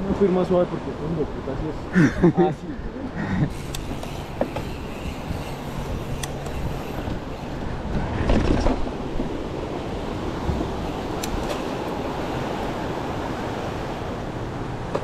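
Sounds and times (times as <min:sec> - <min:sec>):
bike rolling and rattling: 0:03.2 - 0:15.0
wind noise on microphone: 0:03.5 - 0:11.6.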